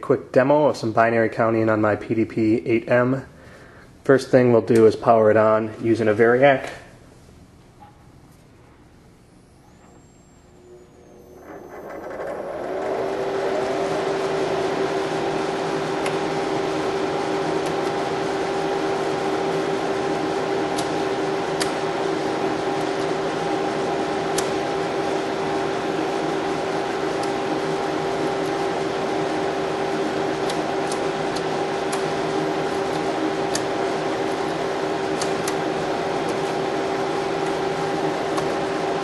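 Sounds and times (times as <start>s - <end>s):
computer cooling fans spinning: 8.0s - 39.0s.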